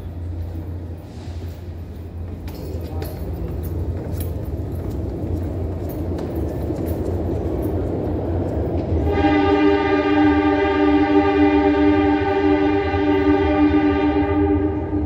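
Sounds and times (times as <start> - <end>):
rails clicking and rattling: 0.0 - 9.1
subway train rumble: 0.0 - 15.0
train horn chord: 8.9 - 15.0.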